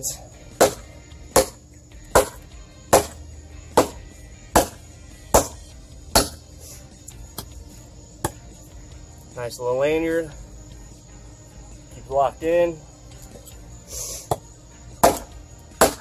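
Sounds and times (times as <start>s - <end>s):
hatchet chopping into log: 0.6s - 0.8s, 1.4s - 3.2s, 3.8s - 4.0s, 4.6s - 5.6s, 6.2s - 6.4s, 15.0s - 16.0s.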